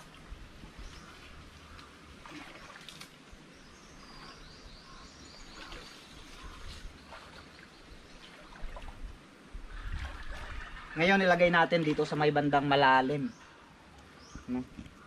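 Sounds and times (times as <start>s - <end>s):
person wading through stream: 0.0s - 12.7s
bird chirping: 3.5s - 8.8s, 12.1s - 15.0s.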